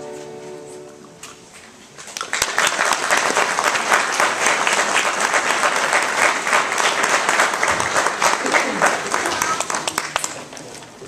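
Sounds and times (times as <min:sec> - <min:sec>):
audience applauding: 0:02.1 - 0:11.0.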